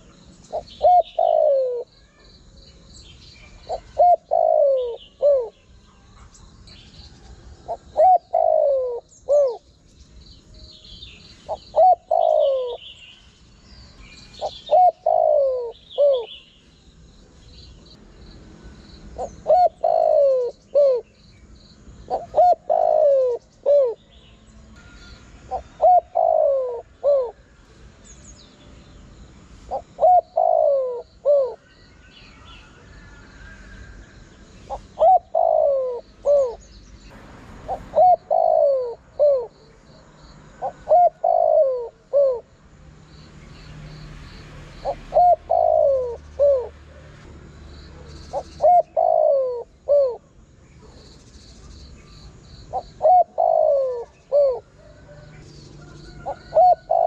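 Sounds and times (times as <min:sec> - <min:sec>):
dove cooing: 0:00.0 - 0:02.1, 0:03.4 - 0:06.2, 0:07.1 - 0:09.7, 0:11.5 - 0:13.0, 0:14.4 - 0:16.4, 0:19.2 - 0:21.2, 0:22.1 - 0:24.1, 0:24.8 - 0:27.5, 0:29.7 - 0:31.7, 0:34.7 - 0:36.6, 0:37.7 - 0:39.7, 0:40.5 - 0:42.5, 0:44.8 - 0:47.3, 0:47.9 - 0:51.0, 0:52.3 - 0:57.0
small birds chirping: 0:00.0 - 0:57.0.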